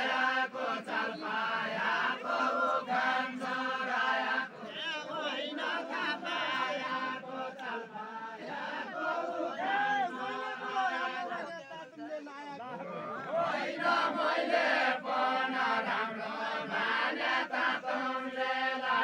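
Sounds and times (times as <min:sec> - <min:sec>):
men singing unaccompanied folk song: 0:00.0 - 0:11.6, 0:12.6 - 0:19.0.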